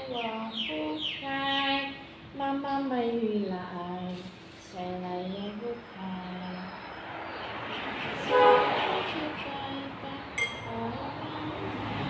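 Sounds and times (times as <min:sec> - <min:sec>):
low background noise: 0:00.0 - 0:12.0
metal spoon clinking on bowl: 0:10.4 - 0:10.8.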